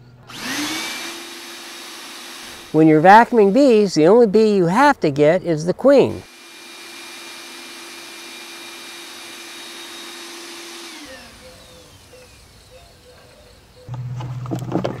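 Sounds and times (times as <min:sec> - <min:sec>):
vacuum motor whining: 0:00.0 - 0:03.4, 0:06.2 - 0:14.7.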